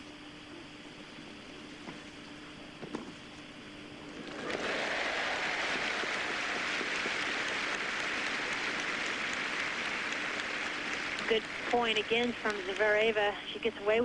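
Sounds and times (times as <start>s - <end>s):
crowd applauding: 4.1s - 13.7s.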